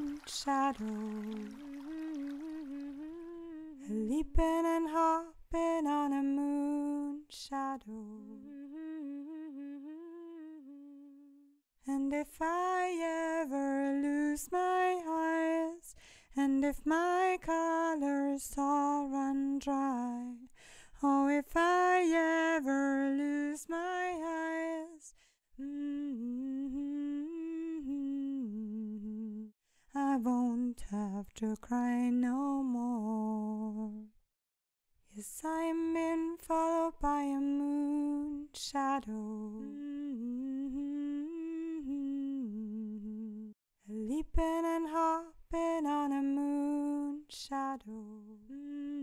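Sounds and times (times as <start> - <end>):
woman humming: 0.0 - 4.4, 8.2 - 11.4.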